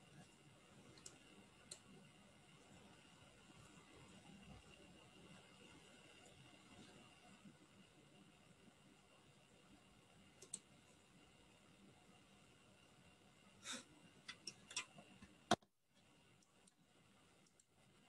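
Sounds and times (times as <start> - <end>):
computer mouse clicks: 0.9 - 1.9, 10.4 - 10.7, 17.4 - 17.7
short breath-like hiss: 13.6 - 13.9.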